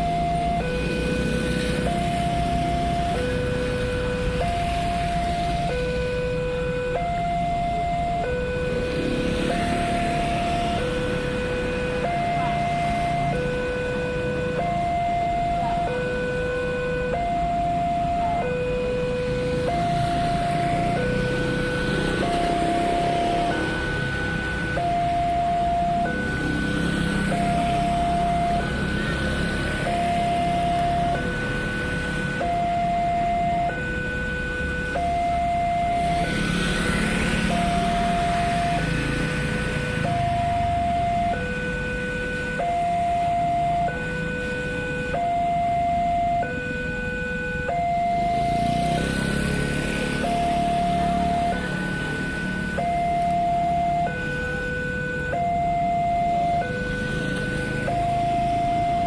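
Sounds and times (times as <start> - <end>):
two-tone level crossing alarm: 0.0 - 59.0.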